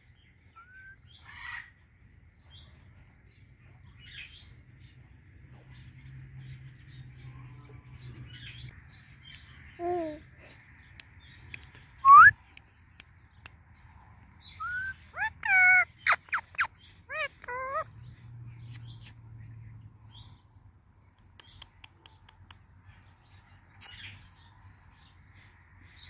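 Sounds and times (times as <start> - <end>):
parakeet squawking: 14.6 - 17.9
parakeet bending calls: 14.7 - 17.9.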